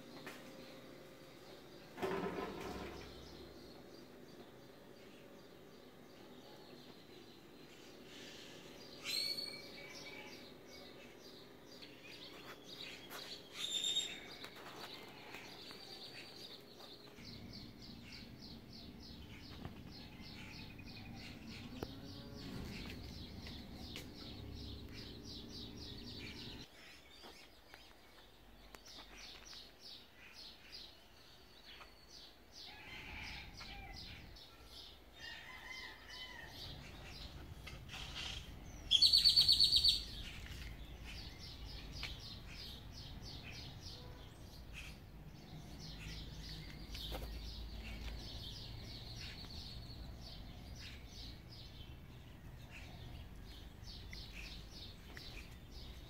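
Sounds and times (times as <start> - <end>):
birds chirping: 0.0 - 56.0
loud sharp bird calls: 36.8 - 42.8.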